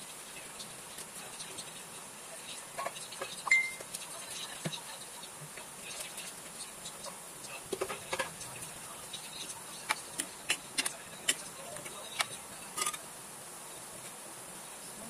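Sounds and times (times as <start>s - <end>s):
steady high hiss: 0.0s - 15.0s
utensil tapping frying pan: 5.5s - 13.0s.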